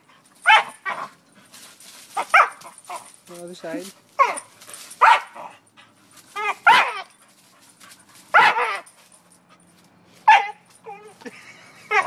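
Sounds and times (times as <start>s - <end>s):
small dog barking: 0.5s - 1.1s, 4.2s - 5.5s, 6.4s - 7.1s, 8.3s - 8.8s.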